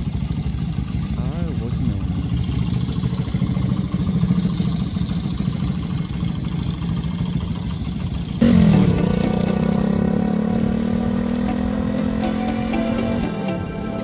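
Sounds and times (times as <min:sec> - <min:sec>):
motorcycle engine idling: 0:00.0 - 0:14.0
music: 0:08.7 - 0:10.1, 0:11.0 - 0:14.0.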